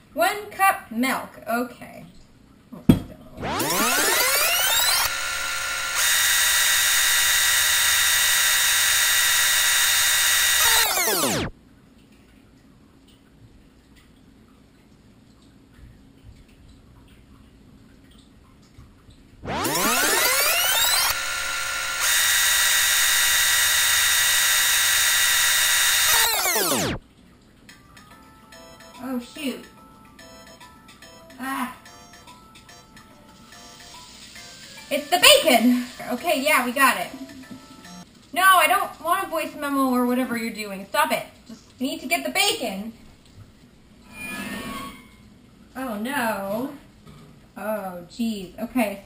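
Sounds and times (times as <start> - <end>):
electronic fast-forward whine: 3.4 - 11.5, 19.4 - 27.0
motorised whirring sound effect: 3.4 - 11.5, 19.4 - 27.0.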